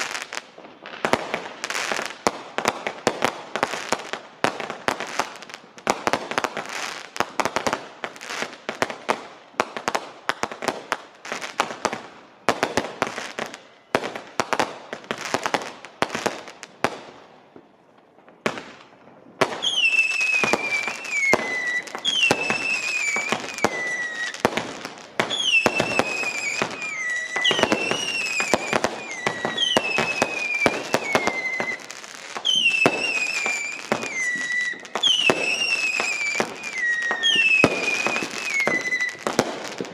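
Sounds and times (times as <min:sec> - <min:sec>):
firework crackling bangs: 0:00.0 - 0:39.9
firework falling whistles: 0:18.4 - 0:39.9.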